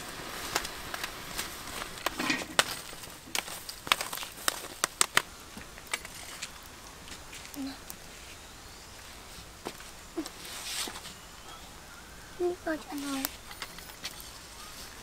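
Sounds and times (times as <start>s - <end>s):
sharp pops: 0.0s - 8.1s
charcoal embers crackling: 0.0s - 15.0s.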